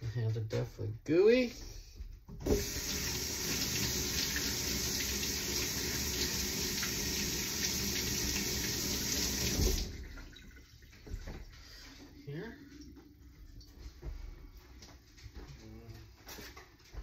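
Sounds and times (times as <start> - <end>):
tap running into sink: 2.4 - 10.1.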